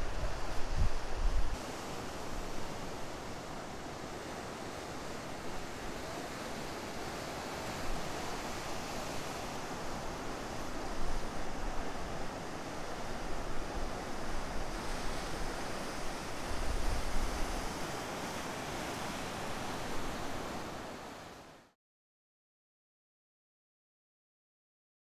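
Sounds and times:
wind rumble on microphone: 0.0 - 1.6, 7.7 - 18.0.

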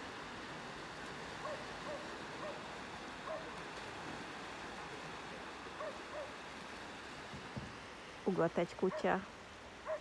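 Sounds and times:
small waves washing on shore: 0.0 - 10.0
dog barking faintly: 1.4 - 2.6, 3.2 - 3.6, 5.8 - 6.4.

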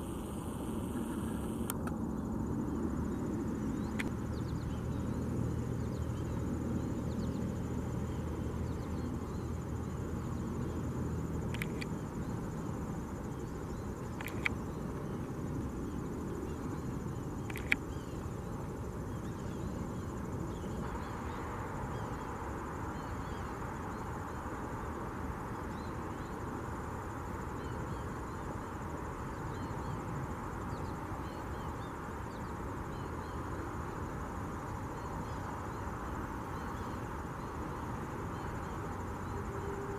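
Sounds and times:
low hum: 0.0 - 21.7
sharp clicks: 1.3 - 2.0, 11.5 - 11.9, 14.1 - 14.6, 17.4 - 17.8.

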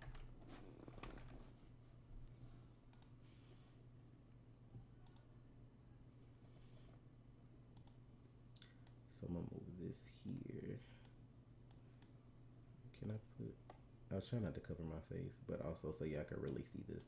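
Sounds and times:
low steady hum: 0.0 - 17.0
computer mouse clicks: 2.9 - 3.2, 5.0 - 5.3, 7.8 - 8.0.

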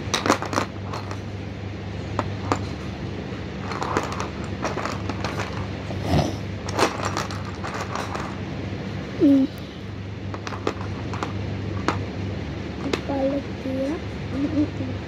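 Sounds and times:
low electrical hum: 0.0 - 15.0
plastic chess pieces clicking: 10.3 - 12.0.

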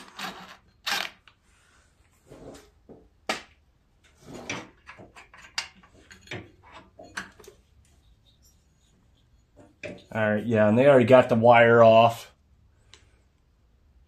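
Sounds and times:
metallic clicks and scrapes: 4.0 - 10.4.

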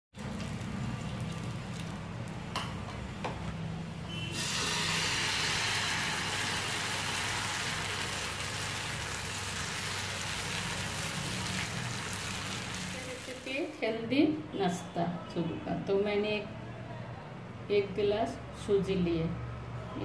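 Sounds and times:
batter sizzling on a hot pan: 4.4 - 13.7.

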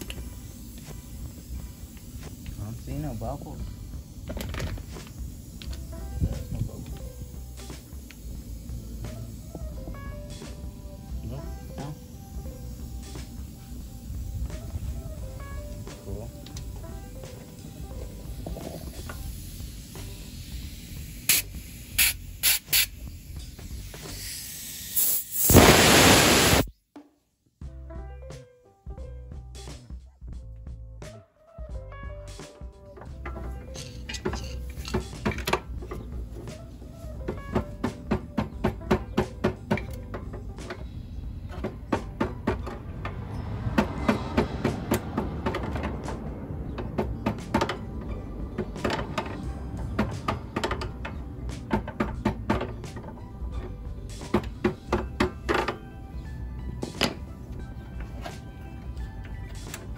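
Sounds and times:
air hissing into tyre: 0.0 - 26.7.

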